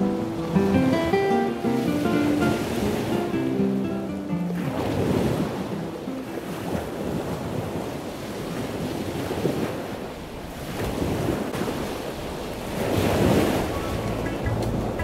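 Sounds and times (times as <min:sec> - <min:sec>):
ocean surf on a sandy beach: 0:00.0 - 0:15.0
wind buffeting the microphone: 0:04.6 - 0:15.0.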